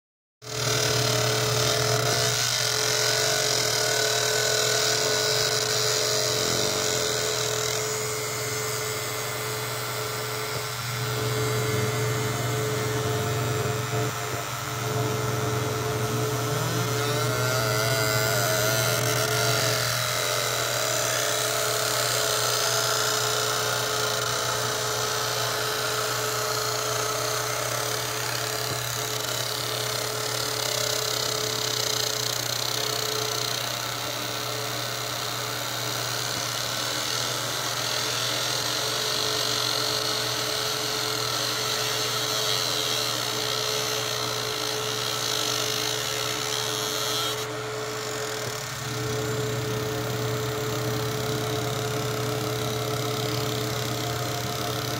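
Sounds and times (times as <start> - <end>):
laser engraver hissing and buzzing: 0.4 - 54.9
machine low hum: 0.5 - 31.8, 43.3 - 54.9.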